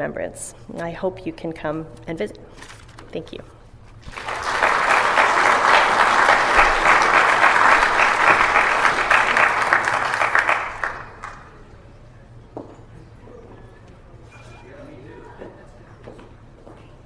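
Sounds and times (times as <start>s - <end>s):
audience applauding: 4.0s - 11.6s.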